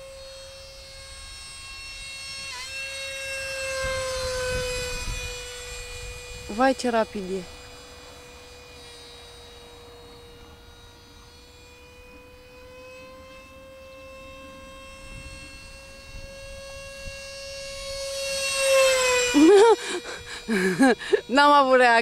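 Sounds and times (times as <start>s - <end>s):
electric ducted fan whine: 0.0s - 22.0s.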